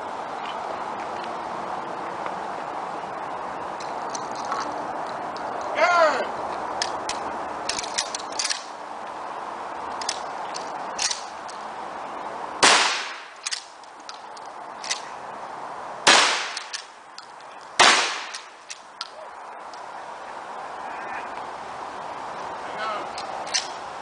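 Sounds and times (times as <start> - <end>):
shotgun blasts: 12.6 - 13.4, 16.0 - 16.8, 17.8 - 18.5.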